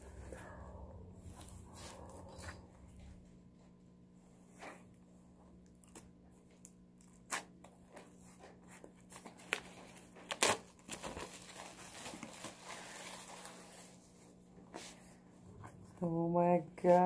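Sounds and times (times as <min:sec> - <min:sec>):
plastic wrap tearing and crinkling: 0:09.1 - 0:13.9.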